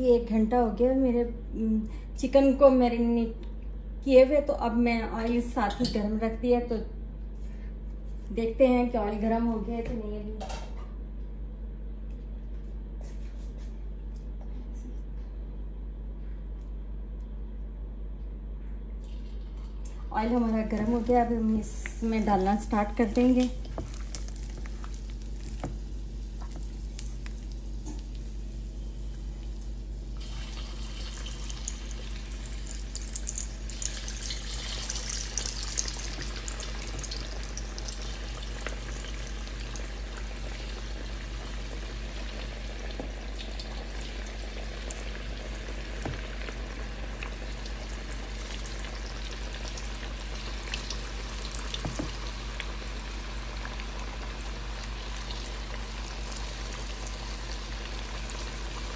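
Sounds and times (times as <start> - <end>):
chicken deep-frying in hot oil: 21.8 - 58.9.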